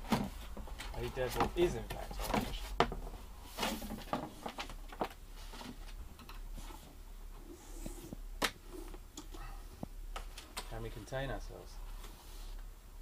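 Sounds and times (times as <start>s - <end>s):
fabric and cardboard rustling: 0.0s - 7.0s.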